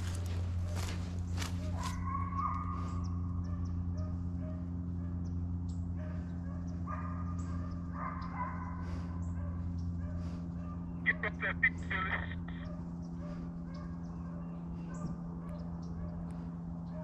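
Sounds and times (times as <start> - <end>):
hunting hounds baying: 0.0 - 17.0
steady low hum: 0.0 - 17.0.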